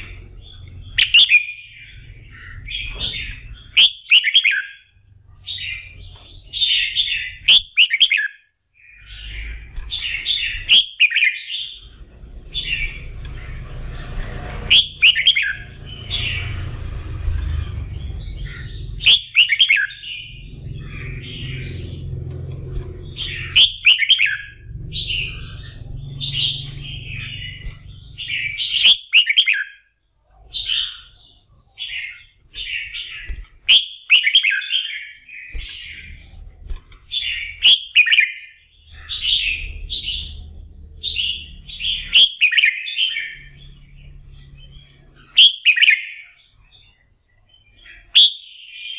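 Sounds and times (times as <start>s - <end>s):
bird singing warbled phrases: 0.0s - 48.9s
low rumble: 11.6s - 28.8s, 38.8s - 42.2s.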